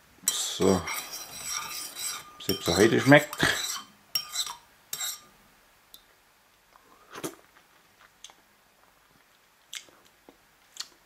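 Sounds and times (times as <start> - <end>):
spoon in a bowl: 0.3 - 5.3.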